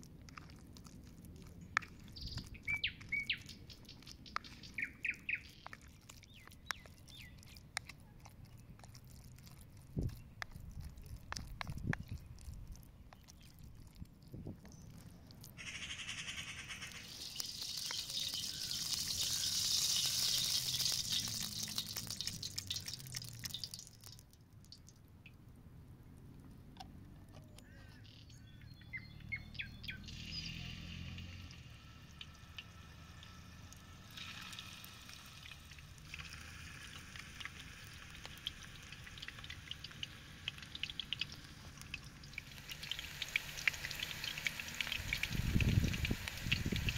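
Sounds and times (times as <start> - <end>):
oil sizzling in a wok: 16.8 - 24.2, 30.0 - 46.9.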